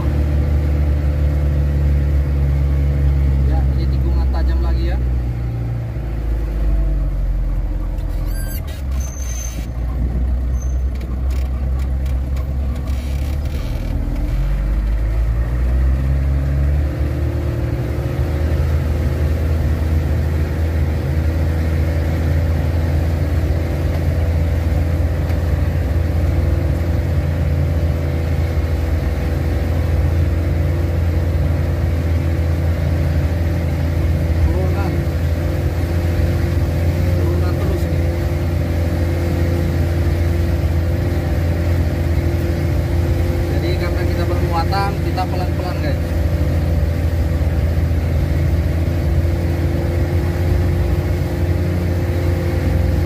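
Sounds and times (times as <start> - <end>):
truck engine running: 0.0 - 53.0
rattles and knocks: 10.9 - 15.0.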